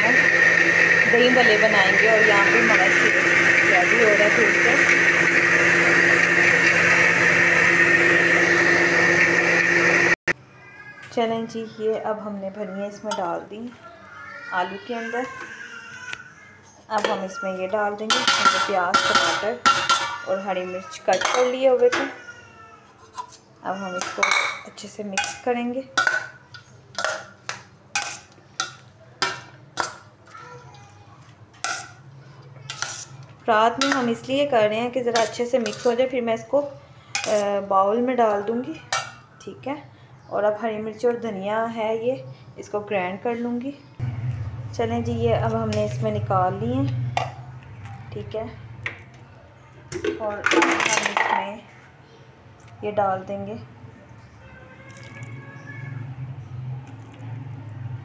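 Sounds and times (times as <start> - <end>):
electric blender running: 0.0 - 10.2
metal spoon clinking on steel bowl: 18.1 - 20.3, 24.0 - 30.0, 33.8 - 34.2, 35.1 - 36.0, 37.2 - 37.6.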